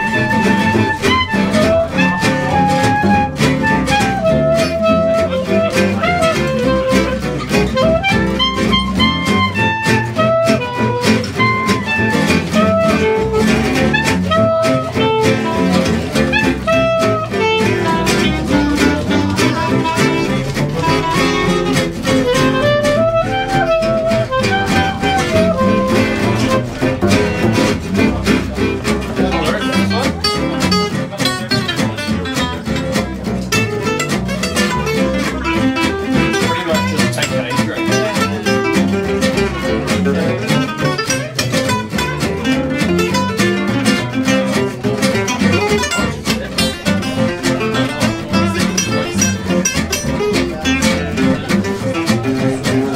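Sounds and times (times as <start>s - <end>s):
clarinet melody: 0.0s - 52.9s
plucked double bass: 0.0s - 52.9s
strummed acoustic guitars: 0.0s - 52.9s.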